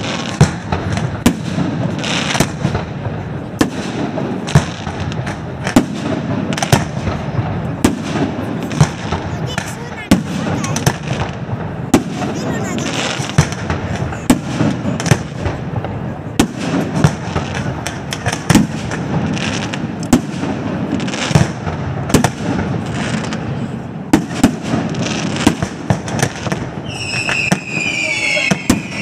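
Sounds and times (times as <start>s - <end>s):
fireworks bangs: 0.0s - 29.0s
firework whistle: 26.8s - 29.0s.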